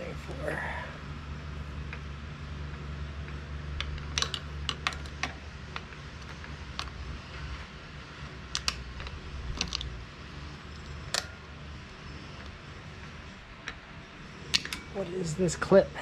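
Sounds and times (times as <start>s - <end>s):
steady low hum: 0.0s - 16.0s
small metal parts clicking and tapping: 3.3s - 7.0s, 8.5s - 9.9s, 10.7s - 11.4s, 13.6s - 14.9s.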